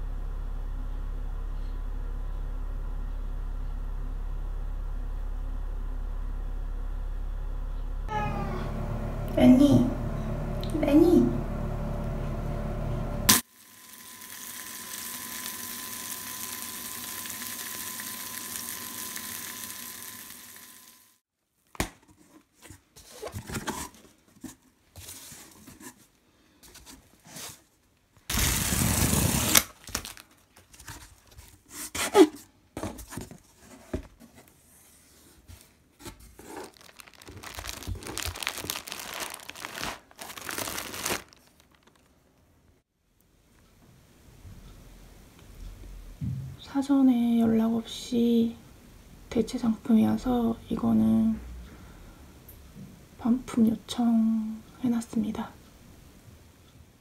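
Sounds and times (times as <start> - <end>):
plastic wrapping rustling: 26.8 - 31.8, 35.7 - 42.5
packing tape tearing off cardboard: 28.3 - 32.3, 36.0 - 42.1.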